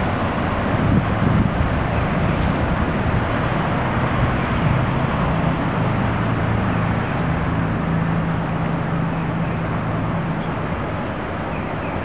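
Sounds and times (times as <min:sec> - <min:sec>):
outdoor background noise: 0:00.0 - 0:12.0.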